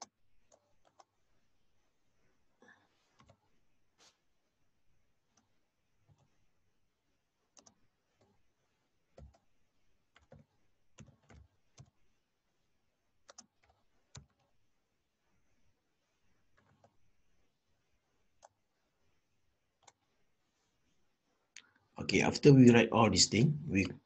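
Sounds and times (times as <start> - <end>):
computer keyboard typing: 0.0 - 1.2, 7.5 - 8.4, 9.1 - 9.5, 10.1 - 12.0, 13.2 - 14.5, 18.4 - 18.6.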